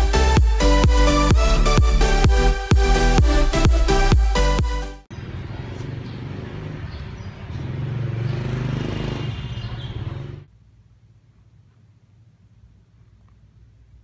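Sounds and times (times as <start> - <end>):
electronic dance music: 0.0 - 5.1
motorbike engines passing: 5.1 - 10.5.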